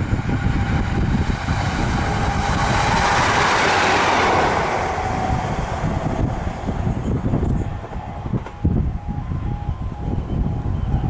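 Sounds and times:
train wheels on rails: 0.0 - 8.8
diesel train passing: 0.0 - 11.0.

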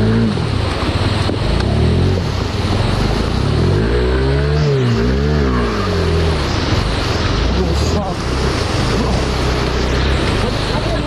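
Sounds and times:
motorcycle engine revving: 0.0 - 11.0
water rushing: 0.0 - 11.0.

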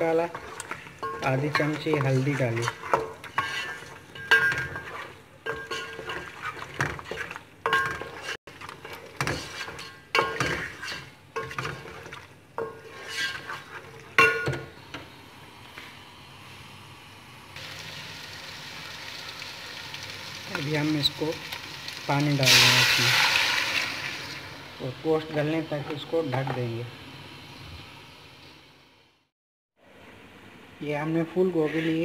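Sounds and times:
spoon scraping metal pot: 0.2 - 14.5, 31.6 - 32.0
meat sizzling in oil: 17.6 - 26.3.

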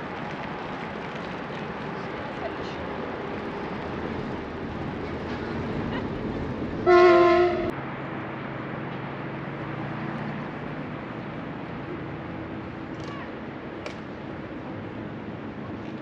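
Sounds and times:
horn blast: 6.8 - 7.7.

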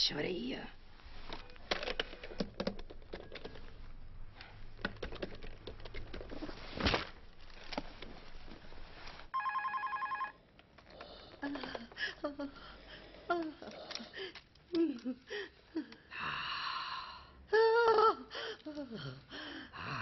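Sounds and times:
electronic telephone ringer trilling: 9.4 - 10.4.

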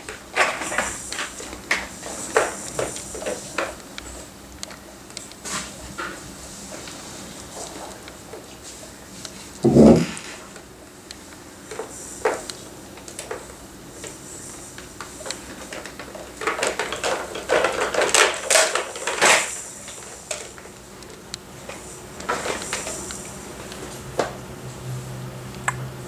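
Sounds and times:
plastic toys clacking and rattling: 15.2 - 20.8.

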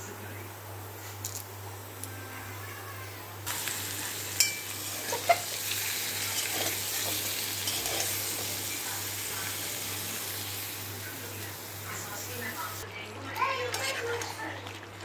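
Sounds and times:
potatoes sizzling in a pan: 3.4 - 12.8
spatula clinking on pan: 4.4 - 5.4, 6.3 - 8.8
metal spatula scraping pan: 6.2 - 8.8.

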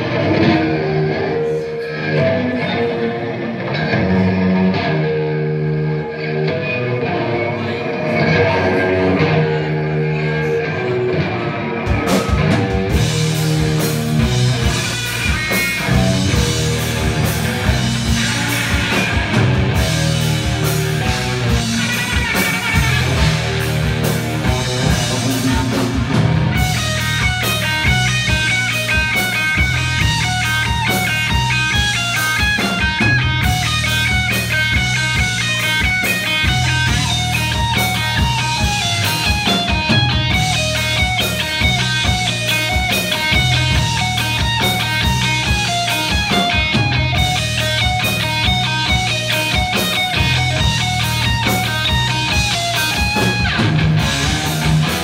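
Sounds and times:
bass guitar: 0.0 - 55.0
electric guitars: 0.0 - 55.0
drums and cymbals: 11.8 - 55.0.

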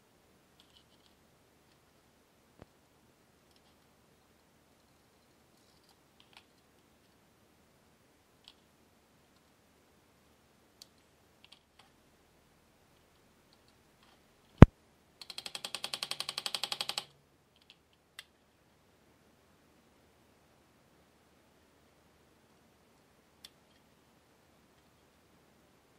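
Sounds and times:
small clicks from hand tools: 15.2 - 18.3.

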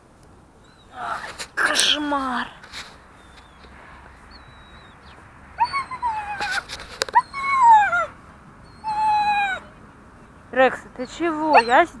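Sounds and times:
young dog whining: 4.3 - 9.7, 11.0 - 12.0.

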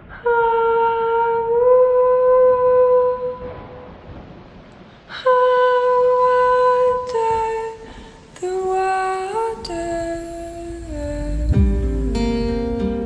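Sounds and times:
slow melody of long notes: 8.4 - 13.0.

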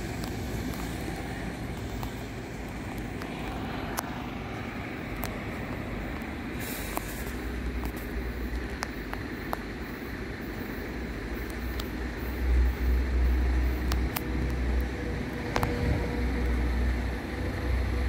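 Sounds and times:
steady hum: 0.0 - 18.0
train rumbling past: 0.0 - 18.0.

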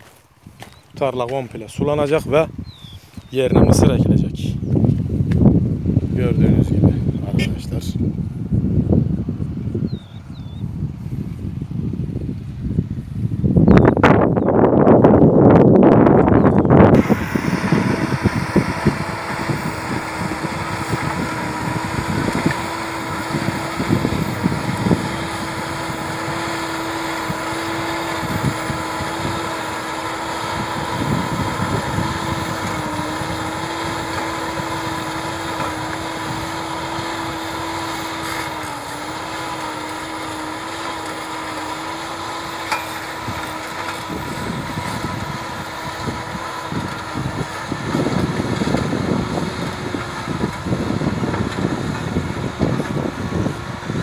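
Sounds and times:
wind buffeting microphone: 0.0 - 54.0
tractor diesel engine running: 15.2 - 54.0.

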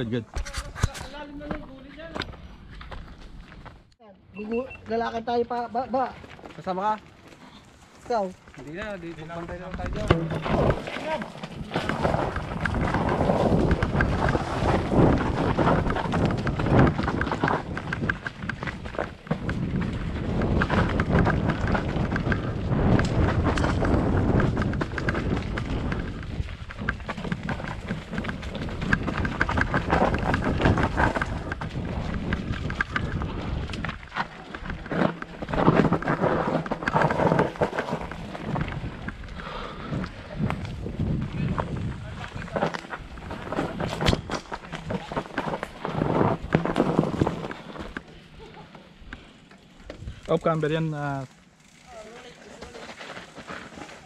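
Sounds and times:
bike knocking and rattling: 0.3 - 3.9, 5.3 - 54.0
bike tyres rolling over dirt: 4.8 - 54.0
wind rumble on microphone: 9.0 - 47.6.

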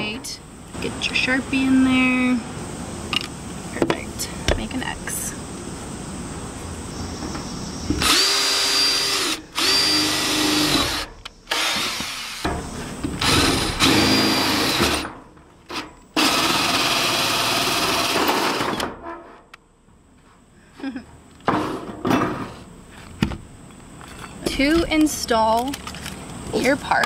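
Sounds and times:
drill hole saw cutting metal: 8.0 - 12.4, 13.2 - 15.0.

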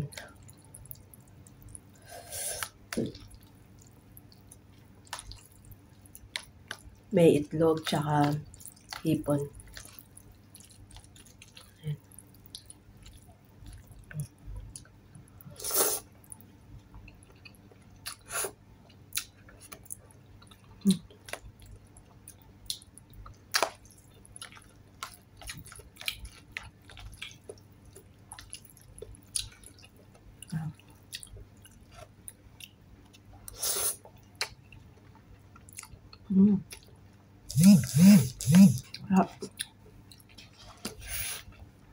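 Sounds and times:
wet chewing: 0.2 - 14.9, 19.1 - 36.9
slurping noodles: 37.5 - 38.8.

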